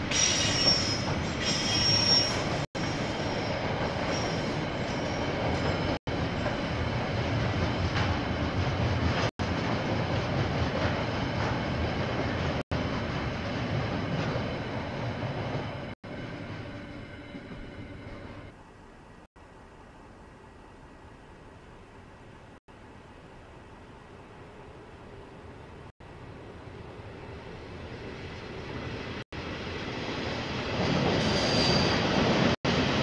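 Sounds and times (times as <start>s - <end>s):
train wheel squeal: 0.0s - 6.7s, 30.8s - 32.4s
train wheels rumbling on rails: 0.0s - 18.5s, 27.9s - 33.0s.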